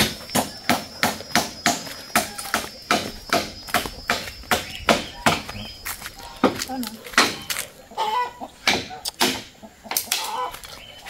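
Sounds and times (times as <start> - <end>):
hammer striking nails into wood: 0.0 - 5.4, 8.6 - 9.5.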